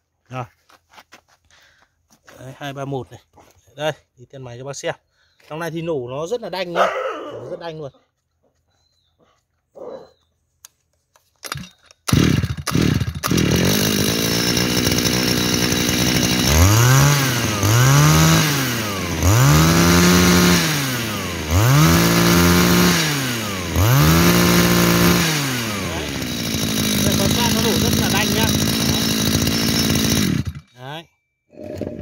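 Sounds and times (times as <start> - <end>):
starter clicks: 10.6 - 16.5
brush cutter engine revving: 11.4 - 30.8, 31.6 - 32.0.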